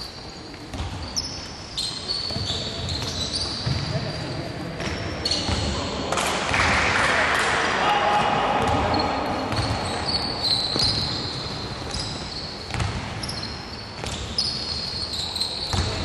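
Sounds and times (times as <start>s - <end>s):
sneakers squeaking on court: 0.0s - 6.0s, 8.6s - 16.0s
basketball bouncing on hardwood floor: 12.7s - 13.3s.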